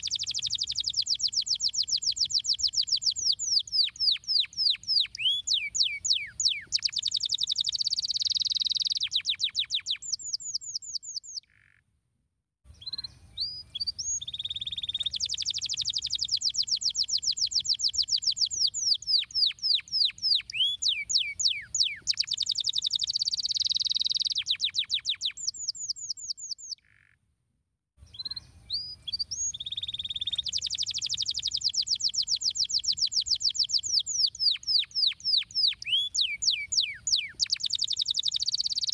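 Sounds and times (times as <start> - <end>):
canary singing: 0.0 - 11.6, 12.8 - 27.1, 28.1 - 38.9.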